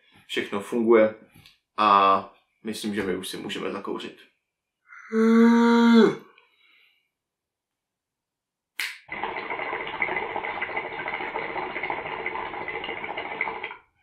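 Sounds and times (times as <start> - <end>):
water bubbling in hookah: 9.0 - 13.9.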